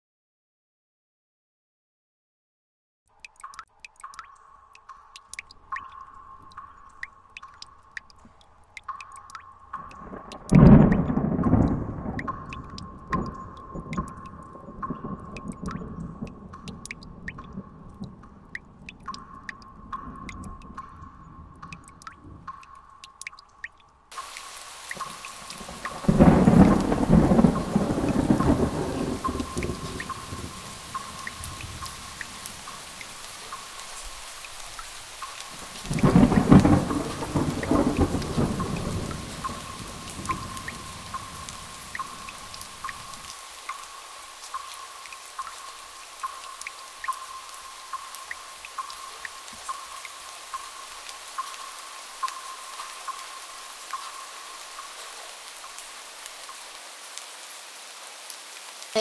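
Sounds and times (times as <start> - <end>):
steady rain: 3.2 - 59.0
thunder clap rumbling: 10.0 - 14.0, 25.6 - 32.4, 35.8 - 42.4.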